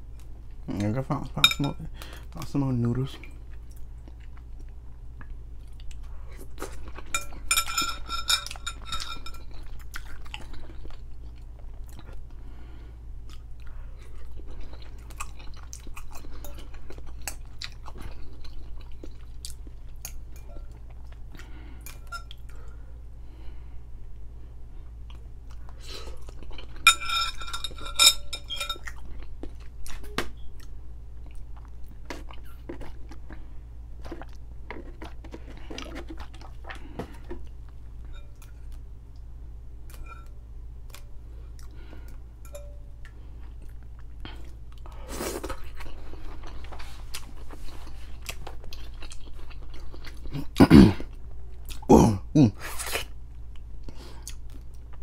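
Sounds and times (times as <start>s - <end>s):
fork clinking glass bowl: 1.4s - 1.8s, 7.0s - 9.7s, 26.8s - 29.0s, 39.9s - 40.3s, 42.4s - 42.9s
chewing noodles: 3.2s - 12.4s, 13.2s - 22.8s, 25.0s - 38.8s, 43.0s - 51.9s.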